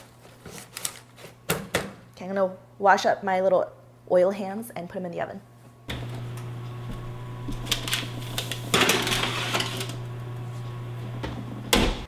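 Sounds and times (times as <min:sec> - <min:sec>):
oven humming: 0:05.5 - 0:12.0
metal tray scraping on oven rack: 0:07.7 - 0:10.1.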